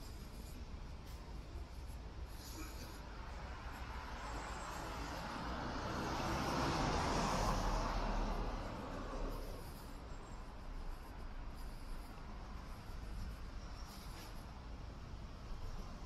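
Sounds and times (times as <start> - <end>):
low street hum: 0.0 - 16.0
car driving past: 3.5 - 9.6.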